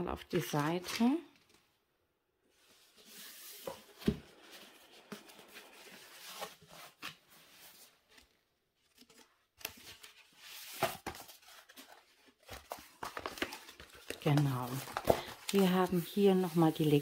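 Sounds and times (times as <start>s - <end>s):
paper and plastic rustling: 2.5s - 17.0s.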